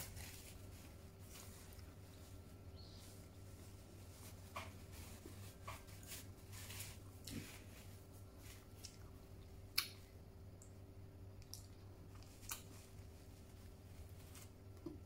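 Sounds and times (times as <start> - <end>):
faint steady hum: 0.0 - 15.0
person chewing food: 11.4 - 13.1.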